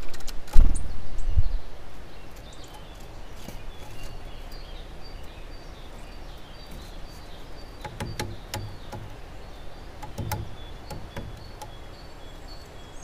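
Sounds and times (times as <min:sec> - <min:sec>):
small birds chirping: 0:00.0 - 0:13.0
woodpecker knocking on wood: 0:06.6 - 0:12.4
light taps: 0:06.7 - 0:09.2, 0:10.0 - 0:11.8.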